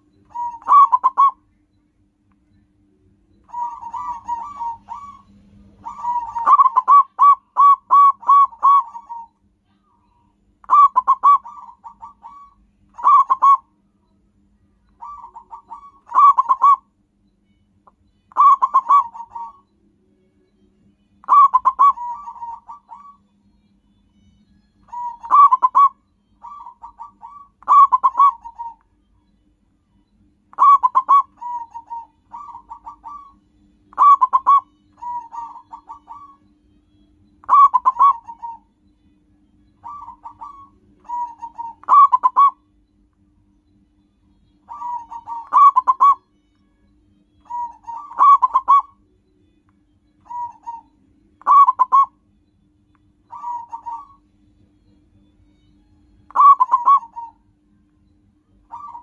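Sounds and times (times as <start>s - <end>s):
dove cooing: 0.0s - 1.4s, 3.5s - 9.3s, 10.6s - 13.7s, 15.0s - 16.9s, 18.3s - 19.6s, 21.2s - 23.2s, 24.9s - 28.8s, 30.5s - 36.5s, 37.4s - 38.7s, 39.8s - 42.6s, 44.7s - 46.2s, 47.4s - 49.0s, 50.2s - 52.2s, 53.3s - 54.2s, 56.3s - 57.4s, 58.7s - 59.0s.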